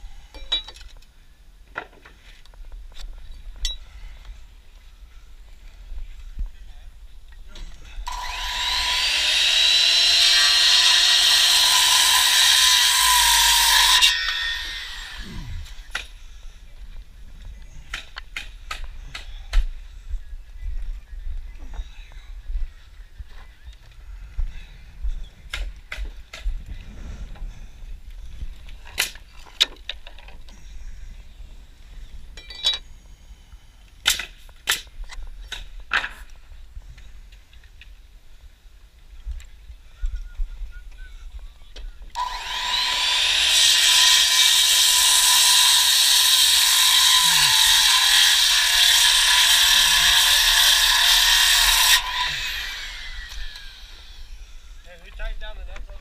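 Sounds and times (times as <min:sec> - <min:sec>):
electric power tool running: 0:08.1 - 0:15.8, 0:42.2 - 0:54.7.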